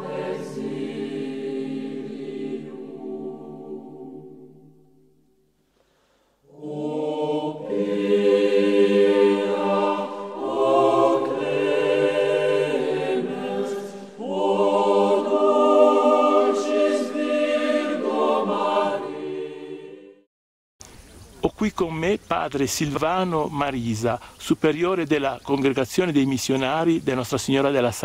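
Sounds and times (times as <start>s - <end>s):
choir singing long notes: 0.0s - 5.4s, 6.4s - 20.3s.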